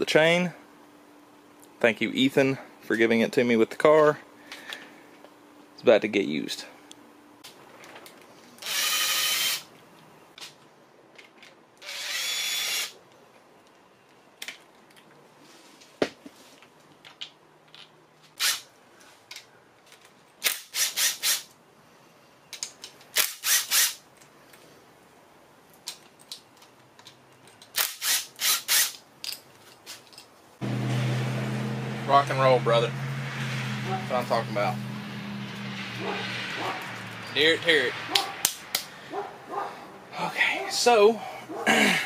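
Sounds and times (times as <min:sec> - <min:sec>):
metal parts clicking: 0:25.8 - 0:30.3.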